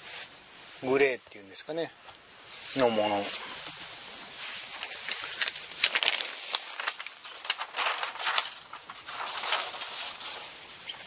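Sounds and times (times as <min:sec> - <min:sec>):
fabric rustling and crinkling: 0:02.4 - 0:11.0.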